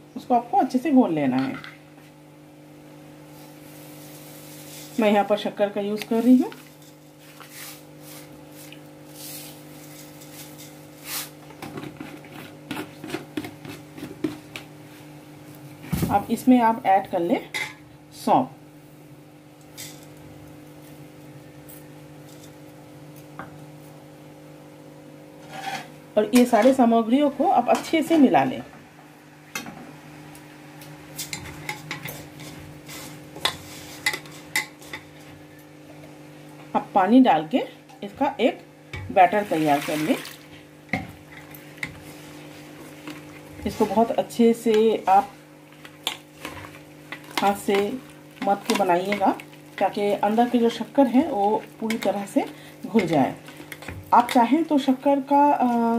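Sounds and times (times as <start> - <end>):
steady low hum: 40.4 - 55.9
hand stirring dry mix in metal bowl: 41.4 - 55.9.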